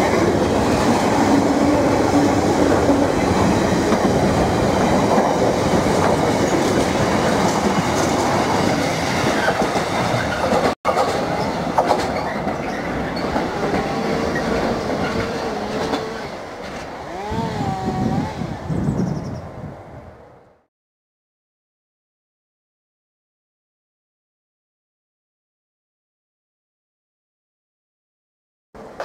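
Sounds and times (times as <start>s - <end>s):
freight train wagons clattering: 2.1s - 17.0s.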